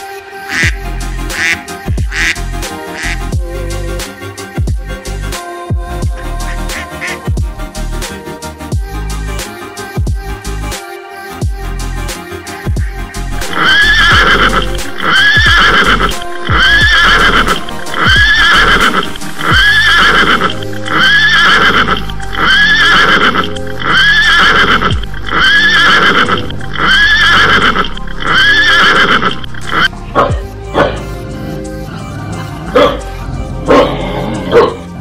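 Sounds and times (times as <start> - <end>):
music with deep bass notes: 0.6 - 10.8, 11.4 - 35.0
horse whinny: 13.4 - 29.9.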